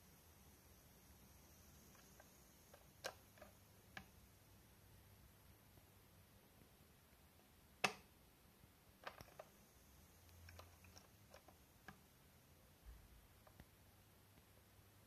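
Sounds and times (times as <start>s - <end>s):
tool clicks and taps: 7.8s - 8.1s.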